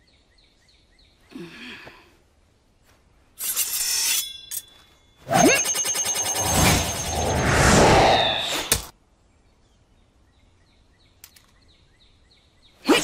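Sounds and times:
swish with metallic ring: 0:03.4 - 0:08.8
rising swish: 0:06.3 - 0:08.9.

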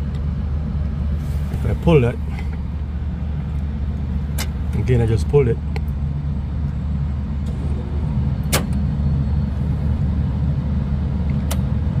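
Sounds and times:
fan droning: 0:00.0 - 0:12.0.

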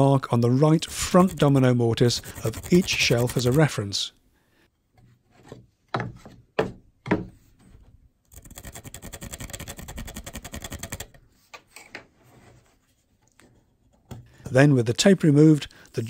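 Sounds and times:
pencil scratching on wood: 0:00.8 - 0:03.7, 0:08.3 - 0:10.6
wooden boards knocking: 0:05.9 - 0:07.4.

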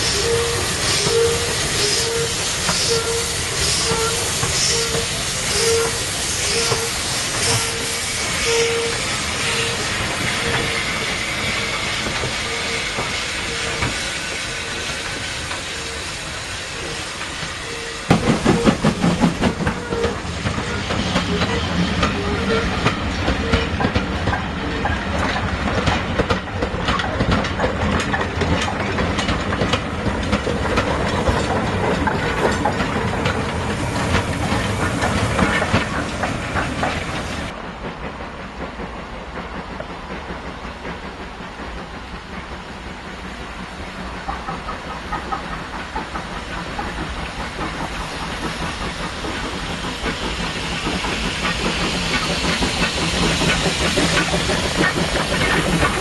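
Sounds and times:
steam hissing: 0:00.0 - 0:56.0
train wheels clattering over rail joints: 0:00.0 - 0:56.0.

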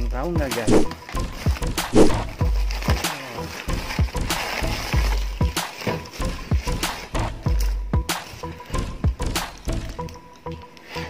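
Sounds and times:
background music with steady beat: 0:00.0 - 0:11.0
cardboard box rustling in plastic bag: 0:00.9 - 0:07.0.

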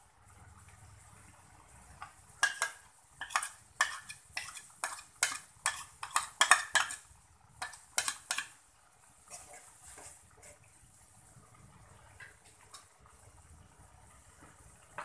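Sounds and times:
metal spoon scraping a bowl: 0:02.4 - 0:07.0.

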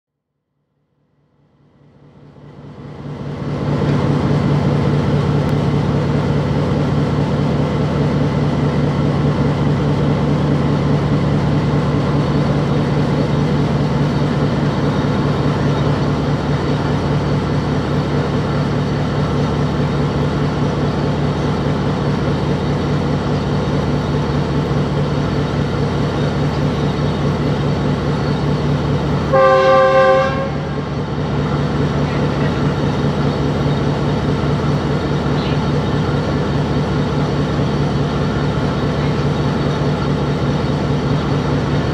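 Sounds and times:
locomotive diesel engine chugging: 0:01.3 - 0:41.9
train horn: 0:29.3 - 0:30.8.

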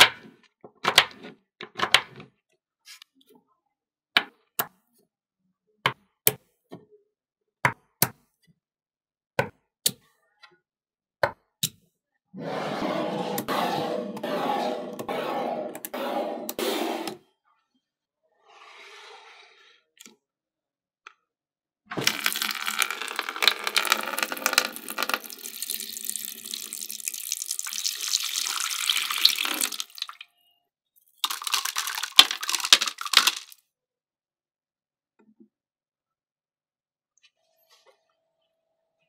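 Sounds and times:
water pouring into plastic basin: 0:21.9 - 0:30.3, 0:31.2 - 0:33.6.

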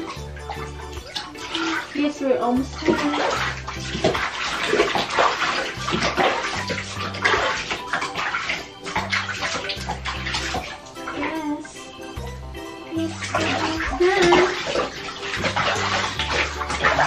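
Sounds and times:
background music with bass line: 0:00.0 - 0:01.7, 0:05.8 - 0:17.0
water splashing in bathtub: 0:00.0 - 0:17.0.

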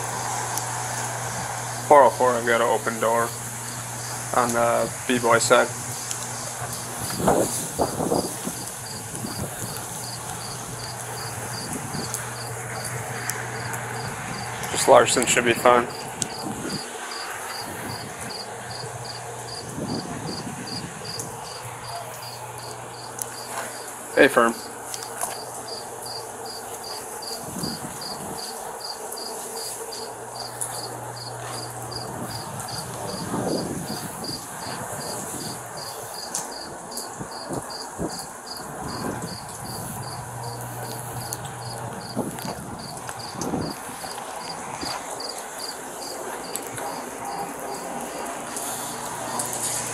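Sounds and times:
crickets chirping: 0:00.0 - 0:49.6
steady low hum: 0:00.0 - 0:49.9.

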